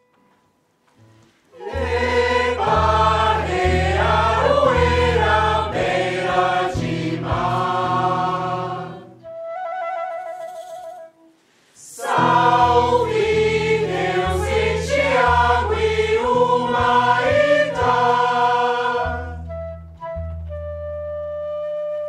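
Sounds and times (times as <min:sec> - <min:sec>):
choir singing in harmony: 0:01.6 - 0:09.2, 0:11.8 - 0:19.5
double bass low notes: 0:01.7 - 0:09.2, 0:12.2 - 0:21.3.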